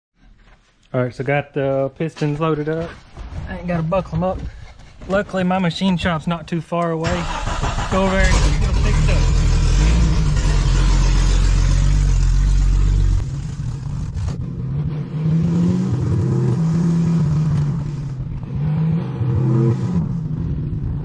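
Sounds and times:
vehicle engine rumbling and accelerating: 0:07.0 - 0:21.0.

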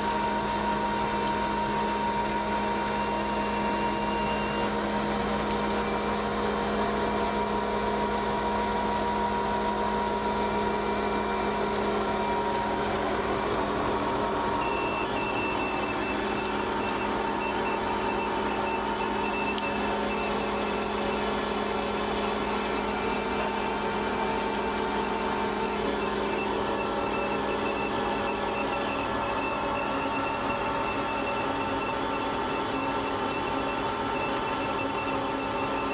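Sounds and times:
higher machine whine: 0:00.0 - 0:35.9
hydraulic auger machine hum: 0:00.0 - 0:35.9.

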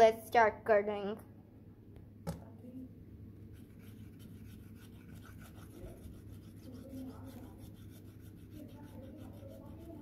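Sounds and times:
pen scratching on paper: 0:03.5 - 0:10.0.

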